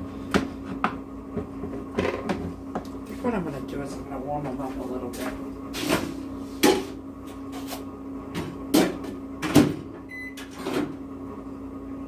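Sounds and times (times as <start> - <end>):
keypad beep: 10.1 - 10.4.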